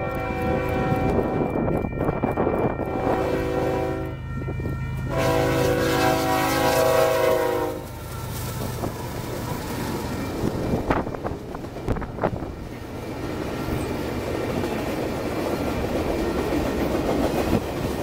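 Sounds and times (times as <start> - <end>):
locomotive horn blasts: 0.0 - 1.4, 2.8 - 4.2, 5.1 - 8.0
freight cars rumbling on rails: 0.0 - 18.0.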